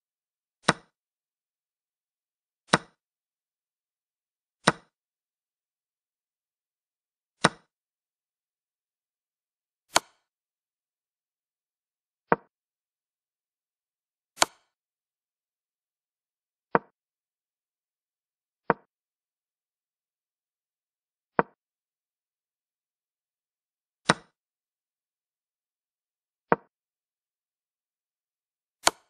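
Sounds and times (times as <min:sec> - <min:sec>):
chess piece placing clicks: 0:00.6 - 0:01.0, 0:02.7 - 0:03.0, 0:04.6 - 0:05.0, 0:07.4 - 0:07.7, 0:09.9 - 0:10.3, 0:12.3 - 0:12.5, 0:14.4 - 0:14.8, 0:16.8 - 0:17.0, 0:21.4 - 0:21.6, 0:24.0 - 0:24.4, 0:26.5 - 0:26.7.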